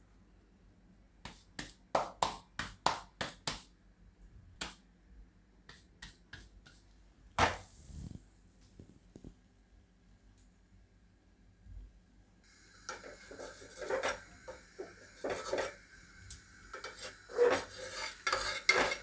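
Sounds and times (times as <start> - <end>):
hands slapping dough: 1.2 - 3.8, 4.6 - 4.9, 5.6 - 6.8
dough laid on griddle slap: 12.9 - 19.0.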